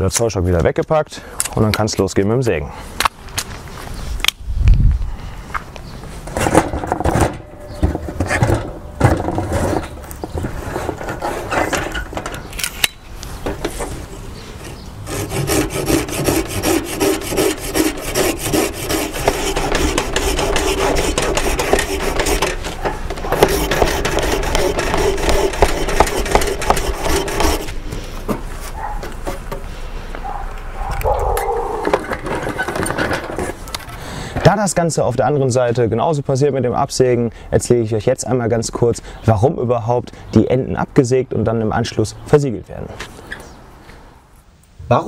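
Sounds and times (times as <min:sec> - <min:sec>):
hand saw cutting branch: 0:15.0 - 0:27.8.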